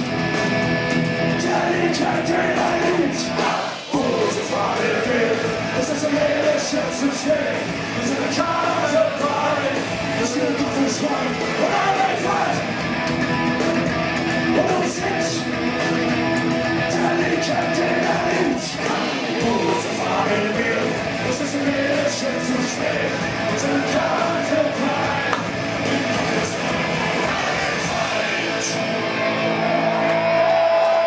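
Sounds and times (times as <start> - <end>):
punk rock band playing live: 0.0 - 31.0
person singing: 1.3 - 12.7, 14.5 - 15.5, 16.8 - 29.1.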